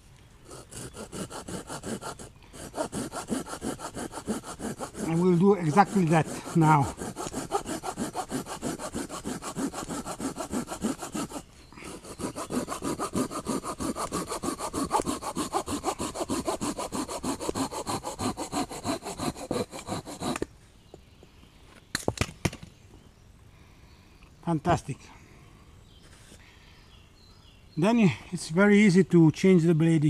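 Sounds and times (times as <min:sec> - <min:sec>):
hand saw cutting branch: 0:00.4 - 0:20.5.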